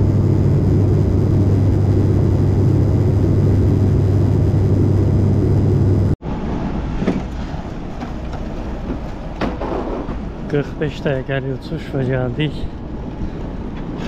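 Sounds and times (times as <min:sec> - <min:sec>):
low rumble: 0:00.0 - 0:06.9
propeller cabin drone: 0:00.0 - 0:14.0.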